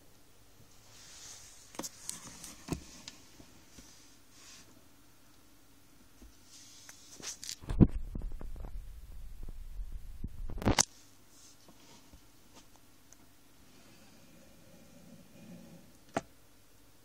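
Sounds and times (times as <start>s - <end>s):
camera handling rumble and knocks: 7.4s - 8.8s.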